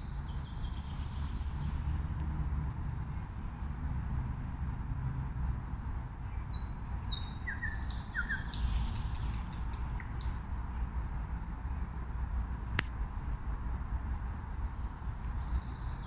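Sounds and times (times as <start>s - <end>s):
nightingale singing: 6.2s - 10.7s, 15.4s - 16.0s.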